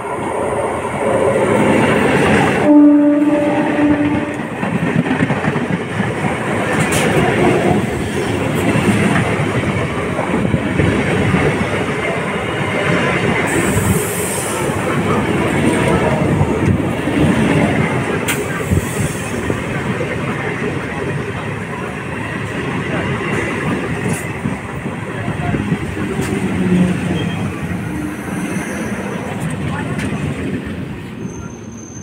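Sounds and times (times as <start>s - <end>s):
train rumbling and clacking past: 0.0s - 32.0s
train horn blast: 2.6s - 4.6s.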